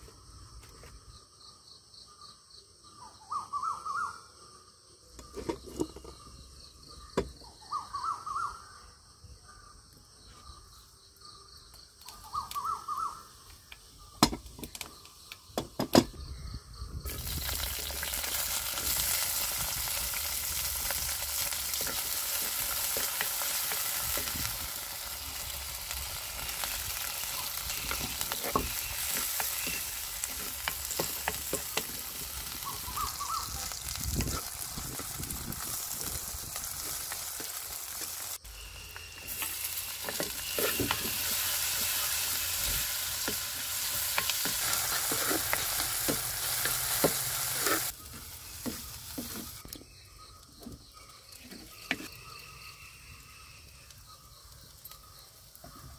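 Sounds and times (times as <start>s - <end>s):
faint bird calls: 2.9s - 14.2s, 25.3s - 34.0s
food sizzling in hot oil: 17.0s - 49.8s.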